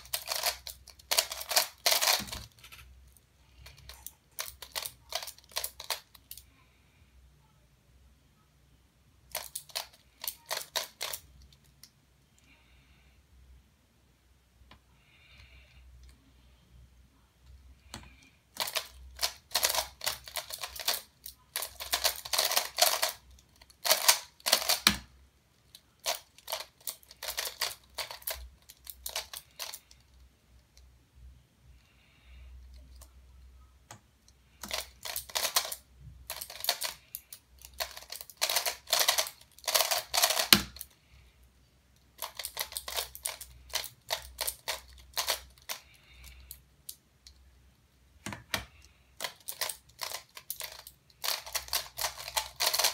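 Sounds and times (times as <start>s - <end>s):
plastic puzzle clicking: 0.0s - 2.9s, 3.6s - 6.4s, 9.3s - 11.9s, 17.9s - 30.2s, 33.9s - 41.0s, 42.0s - 47.4s, 48.2s - 52.9s.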